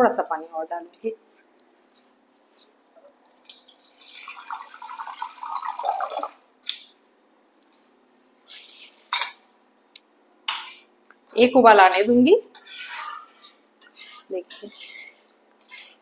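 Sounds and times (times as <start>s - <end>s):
water being poured: 3.4s - 6.4s
water poured into curry: 3.5s - 6.4s.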